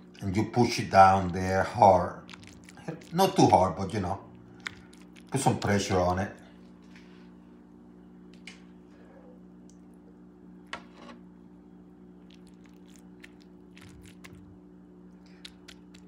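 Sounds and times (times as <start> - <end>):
spoon squishing meat stuffing: 0.2 - 6.4, 12.2 - 14.4, 15.3 - 16.0.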